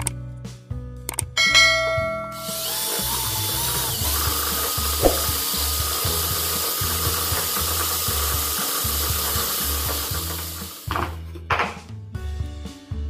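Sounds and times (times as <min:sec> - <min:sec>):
background music with bass: 0:00.0 - 0:13.0
drill motor whine: 0:02.3 - 0:10.8.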